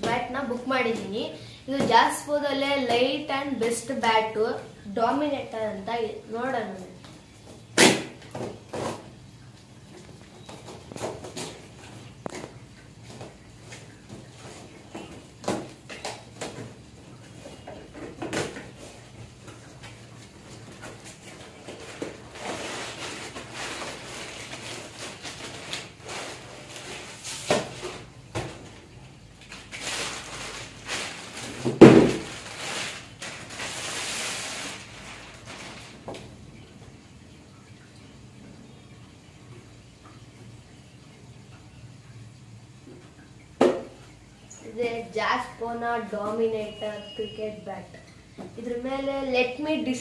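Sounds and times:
plastic wrap rustling: 0:06.6 - 0:36.3.

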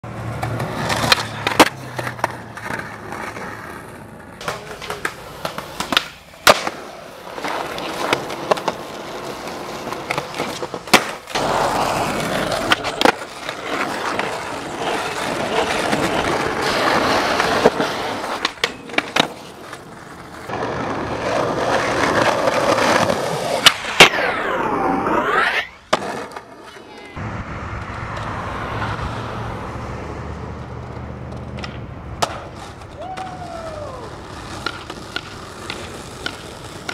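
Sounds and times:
skateboard wheels rolling on concrete: 0:00.0 - 0:36.9
skateboard grinding on metal rail: 0:00.1 - 0:27.2
skateboard pops and clacks: 0:00.4 - 0:03.6, 0:04.4 - 0:20.7, 0:21.3 - 0:24.3, 0:30.8 - 0:33.6, 0:34.2 - 0:36.9.

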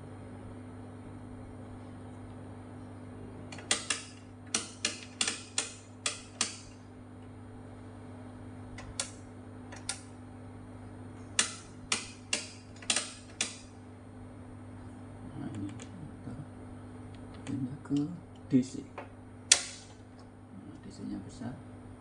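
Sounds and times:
rotary selector switch clicking: 0:03.6 - 0:06.8, 0:08.8 - 0:10.1, 0:11.4 - 0:13.7.

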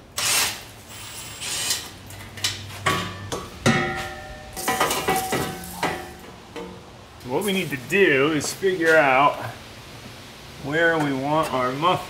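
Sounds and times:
metallic clanks of exhaust pipes: 0:02.1 - 0:06.9.

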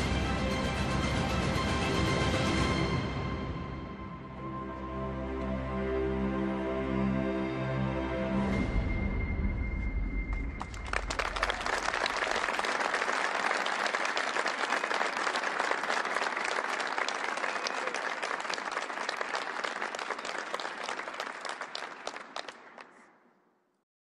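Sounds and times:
audience applauding: 0:10.3 - 0:23.2.

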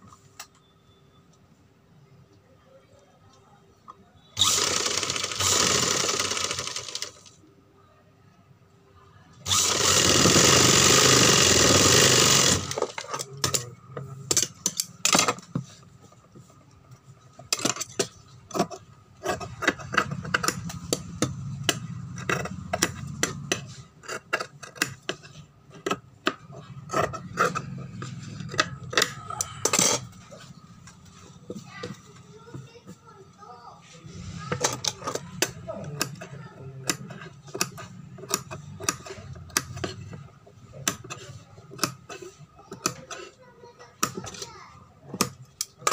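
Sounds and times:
sewing machine running: 0:04.4 - 0:07.4, 0:09.4 - 0:13.0
scissors cutting fabric: 0:25.8 - 0:30.1.

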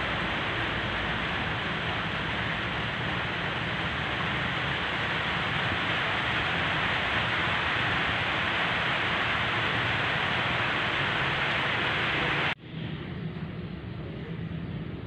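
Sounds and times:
steady even hiss: 0:00.0 - 0:12.6.

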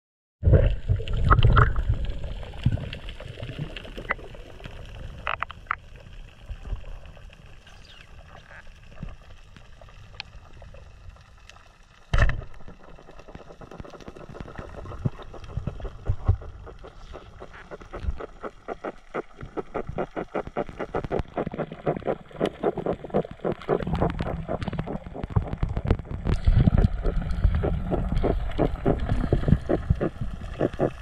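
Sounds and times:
underwater rumble: 0:00.4 - 0:31.0
underwater clicks: 0:05.2 - 0:05.8, 0:12.1 - 0:31.0.

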